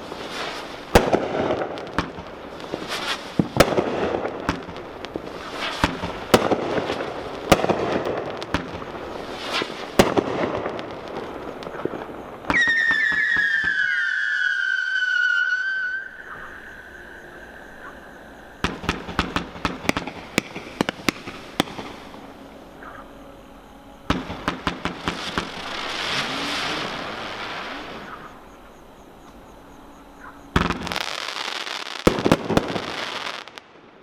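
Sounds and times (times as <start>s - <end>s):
fireworks launching and bursting: 0.0s - 16.4s, 18.6s - 23.0s, 24.1s - 28.4s, 30.5s - 34.0s
fireworks whistles: 0.0s - 28.6s, 30.1s - 34.0s
crackling pops: 18.6s - 22.2s.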